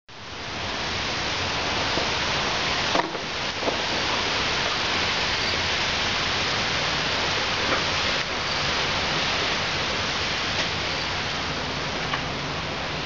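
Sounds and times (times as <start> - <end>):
rain falling: 0.1 - 13.0.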